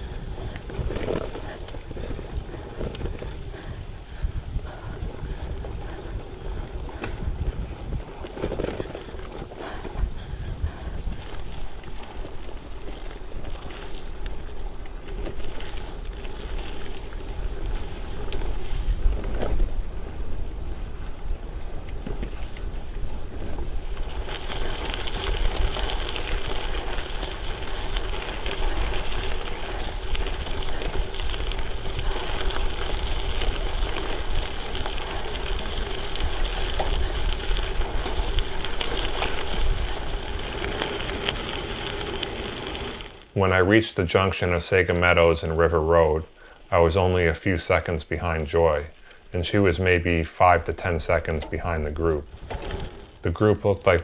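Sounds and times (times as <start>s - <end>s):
wind buffeting microphone: 0.0s - 42.2s
bike tyre and trail noise: 0.0s - 54.0s.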